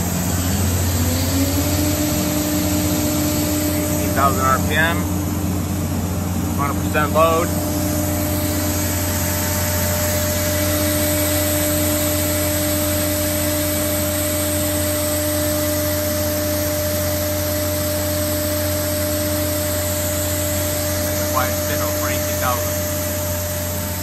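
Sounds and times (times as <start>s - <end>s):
spindle whine: 0.0s - 24.0s.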